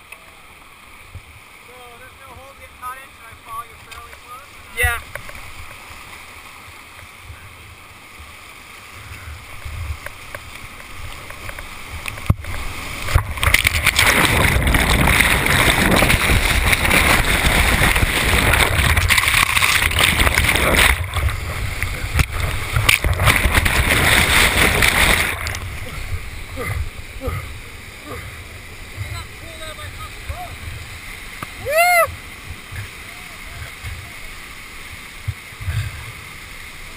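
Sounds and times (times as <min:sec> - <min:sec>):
whitewater rushing: 0:00.0 - 0:36.9
churning water on microphone: 0:09.0 - 0:34.4.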